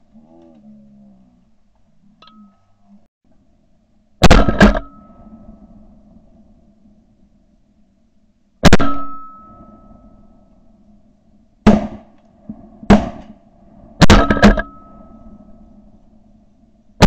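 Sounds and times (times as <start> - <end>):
shotgun shots: 4.2 - 5.0, 8.6 - 9.2, 11.7 - 12.1, 12.9 - 13.4, 14.0 - 14.7.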